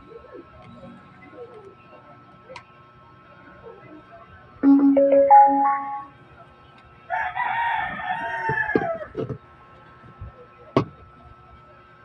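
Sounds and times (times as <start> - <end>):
electronic power-on jingle: 4.6 - 6.1
rooster crowing: 7.1 - 9.1.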